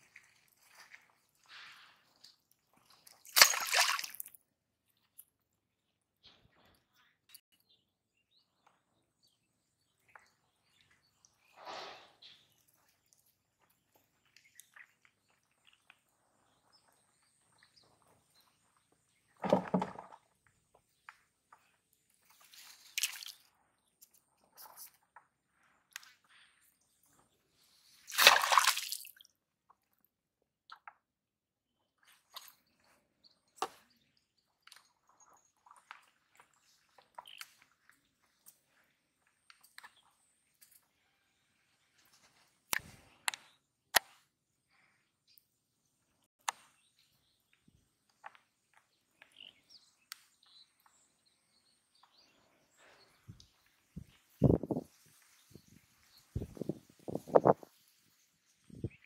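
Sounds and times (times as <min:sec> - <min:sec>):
soft wet squishing of fish: 0:00.0 - 0:04.4.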